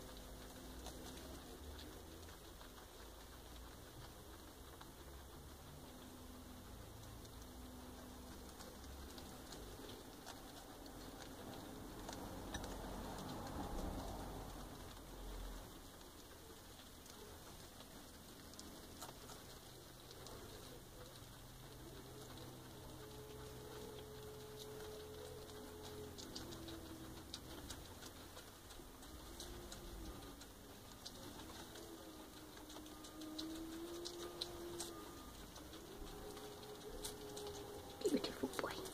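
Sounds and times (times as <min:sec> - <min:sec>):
guinea pig chewing a leaf: 0:00.0 - 0:38.9.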